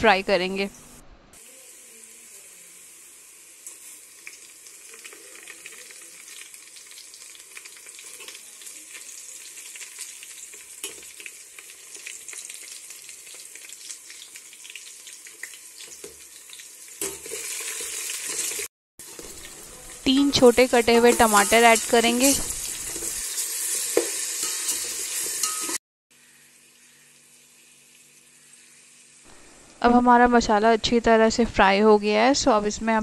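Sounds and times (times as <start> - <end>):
spices sizzling in hot oil: 1.4 - 29.6
metal spoon stirring in pot: 17.0 - 25.8.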